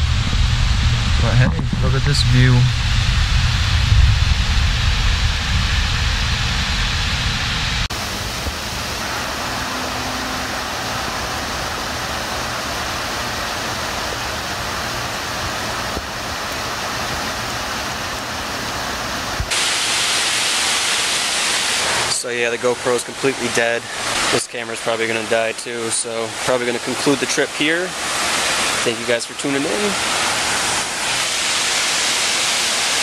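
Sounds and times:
heavy low rumble: 0.0 - 17.4
waterfall rushing over rocks: 5.0 - 33.0.

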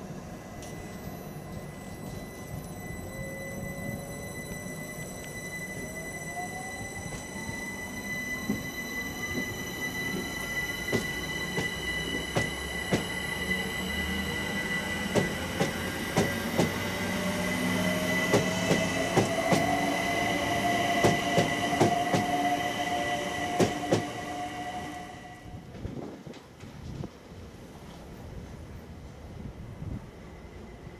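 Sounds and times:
electric train motor whine: 0.0 - 25.6
train wheels clicking on rail joints: 6.8 - 22.6, 23.3 - 24.4.

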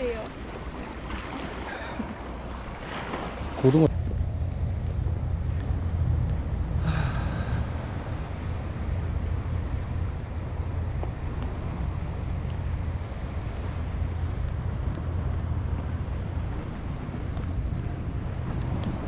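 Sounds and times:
wind noise on microphone: 3.0 - 19.0.

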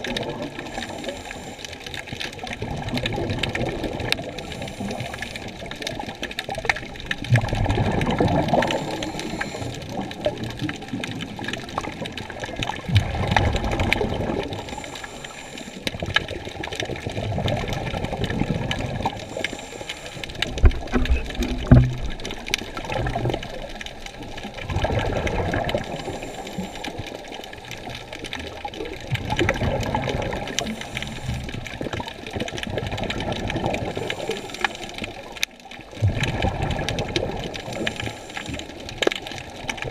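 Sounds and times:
water sloshing underwater: 0.0 - 39.9.

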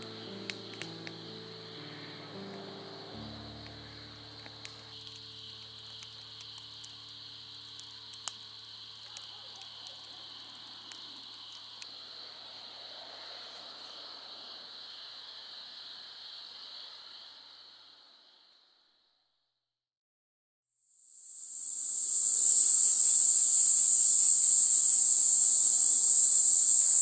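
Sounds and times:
insects chirring: 0.0 - 19.1, 21.0 - 27.0
faint clicks: 4.4 - 11.9.

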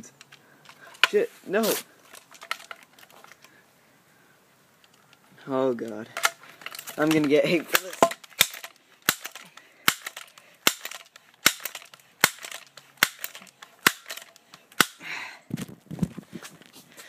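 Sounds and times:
pellet gun action clicking: 5.8 - 15.0.

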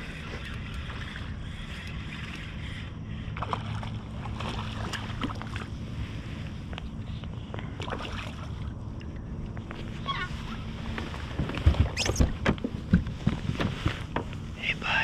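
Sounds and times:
knocks and splashes of fish: 3.4 - 5.7, 7.8 - 8.7
water rumbling against hull: 7.5 - 14.4.

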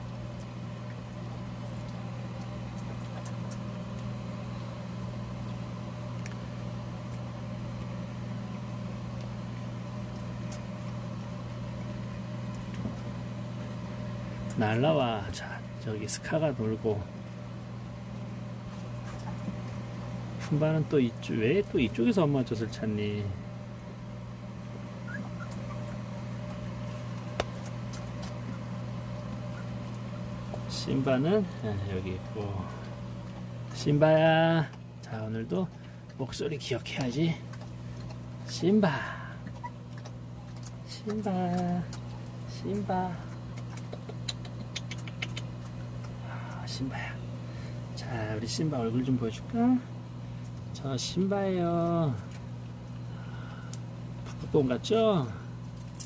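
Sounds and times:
electric fan humming: 0.0 - 56.0
puppy squeaks: 25.0 - 26.0, 39.6 - 39.8.

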